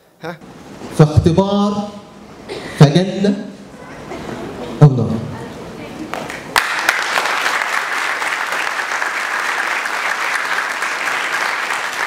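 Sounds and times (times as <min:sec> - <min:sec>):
group of people clapping: 0:06.1 - 0:12.0.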